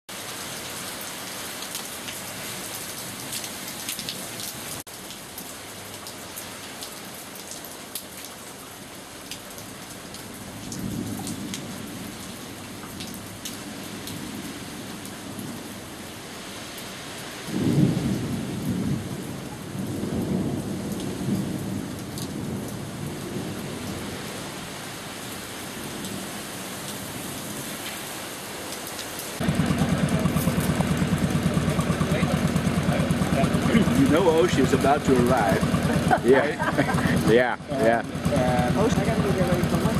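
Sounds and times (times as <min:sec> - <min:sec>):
steady rain falling: 0:00.1 - 0:39.9
rolling thunder: 0:17.5 - 0:24.1.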